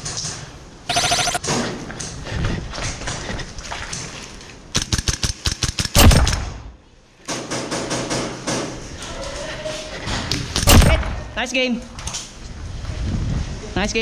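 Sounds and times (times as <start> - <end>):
airsoft rifle shots: 0.9 - 1.5, 4.8 - 6.7, 10.6 - 11.1.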